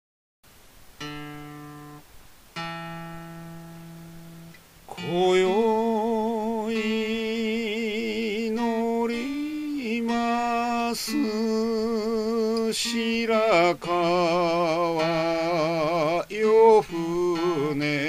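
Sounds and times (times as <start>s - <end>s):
plucked string notes: 1.0s - 18.0s
person singing with vibrato: 4.9s - 18.0s.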